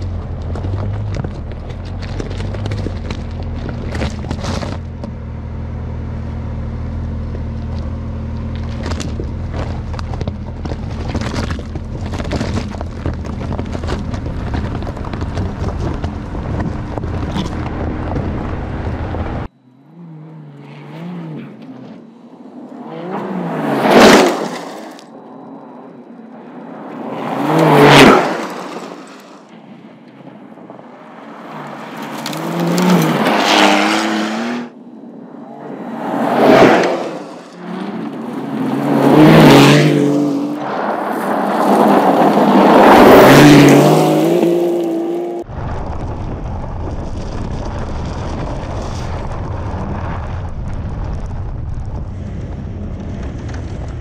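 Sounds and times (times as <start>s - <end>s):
stones crunching under tyres: 0.0s - 5.2s, 6.9s - 19.4s, 26.8s - 34.4s, 35.8s - 54.0s
car engine running low: 0.0s - 23.8s, 29.5s - 54.0s
car passing fast: 17.6s - 25.0s, 26.7s - 45.5s.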